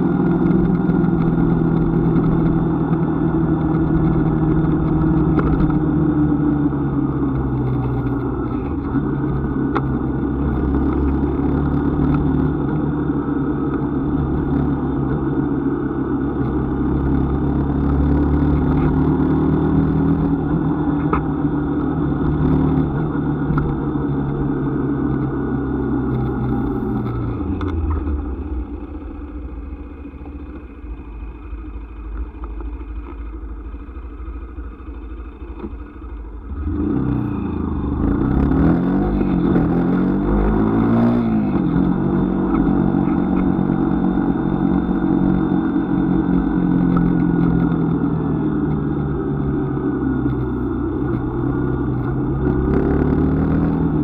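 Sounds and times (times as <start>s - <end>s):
vehicle engine running and revving: 0.0s - 54.0s.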